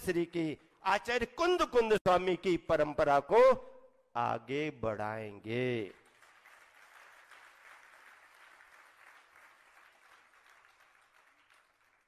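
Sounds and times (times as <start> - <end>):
faint audience applause: 5.9 - 12.0.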